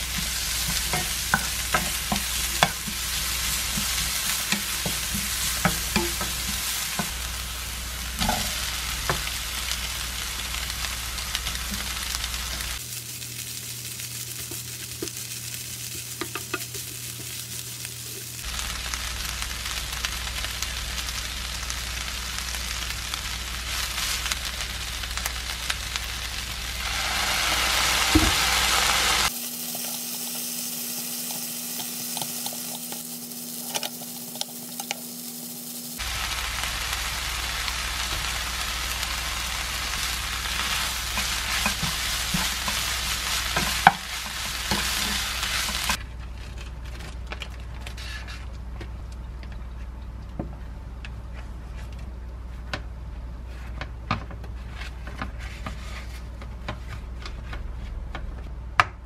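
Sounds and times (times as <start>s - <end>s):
greens sizzling in frying pan: 0.0s - 46.0s.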